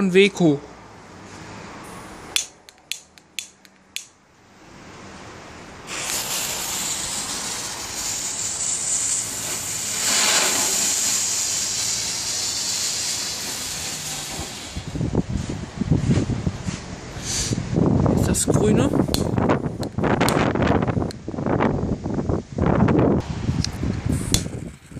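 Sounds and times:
lighter clicks: 2.4s - 4.1s
firework fountain hissing: 5.8s - 15.1s.

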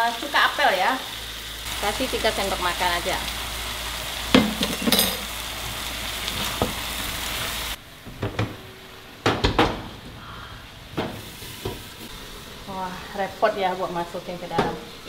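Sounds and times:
meat sizzling in a pan: 0.0s - 7.8s, 11.1s - 15.0s
utensil knocking against pan: 4.4s - 5.2s
cookware clattering: 4.4s - 5.3s.

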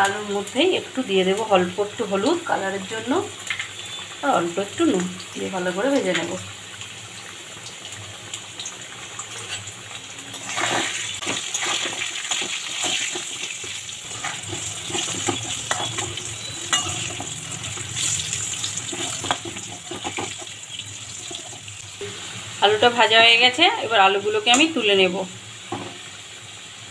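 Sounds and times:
potatoes sizzling in hot oil: 0.0s - 26.9s
metal spatula scraping pan: 10.3s - 21.7s.

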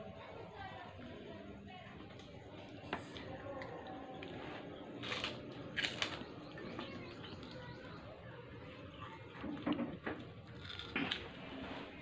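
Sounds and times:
crunching prawn crackers: 2.0s - 8.0s, 9.5s - 11.6s.

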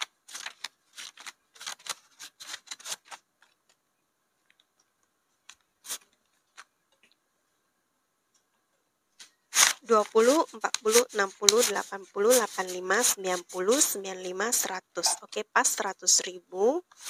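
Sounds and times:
banknotes rustling and flicking: 0.0s - 3.8s, 4.4s - 6.8s, 9.2s - 16.2s, 16.8s - 17.0s.

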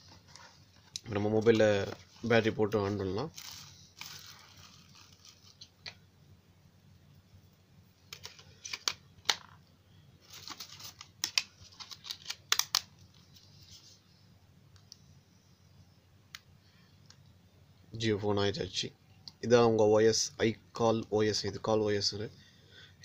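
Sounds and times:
plastic clicks and snaps: 11.1s - 12.9s.

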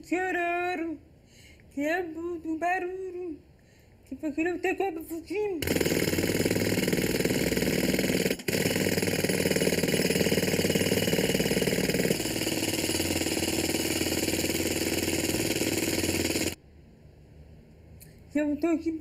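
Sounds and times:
jackhammer chiselling concrete: 5.6s - 16.6s.

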